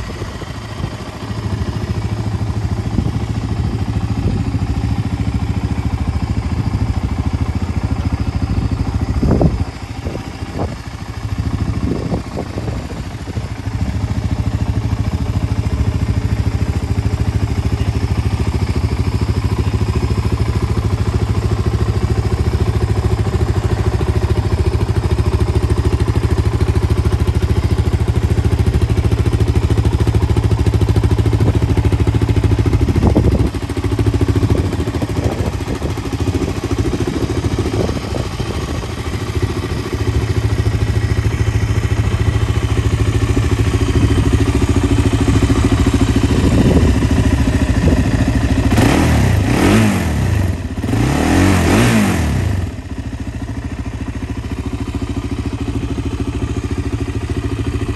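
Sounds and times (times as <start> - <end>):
atv engine idling: 0.0 - 57.9
engine revving: 48.6 - 52.8.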